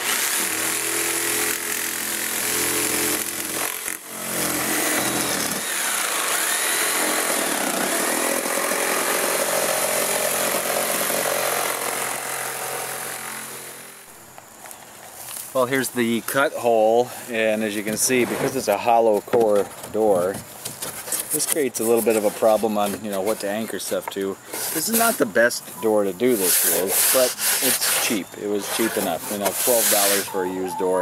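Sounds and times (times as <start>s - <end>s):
jigsaw cutting through wood: 0.0s - 14.1s, 26.4s - 30.7s.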